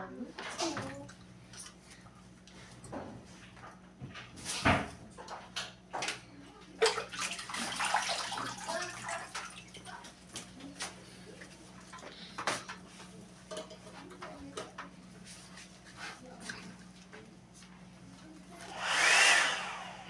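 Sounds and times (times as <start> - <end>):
steady low hum: 18.5 - 20.0.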